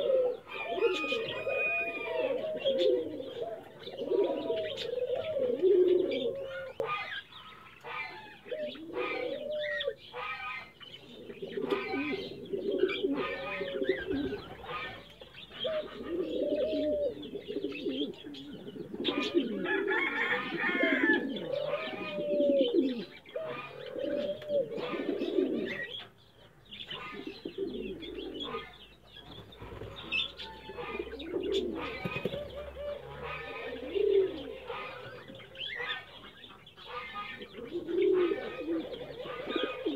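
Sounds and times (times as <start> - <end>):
pigeons cooing: 0.0 - 39.9.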